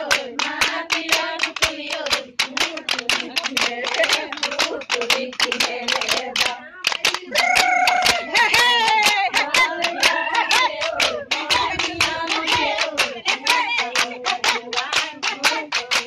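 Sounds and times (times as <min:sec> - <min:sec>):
bamboo clappers clacking: 0:00.0 - 0:16.0
hand claps: 0:00.0 - 0:16.0
women singing together: 0:00.0 - 0:16.0.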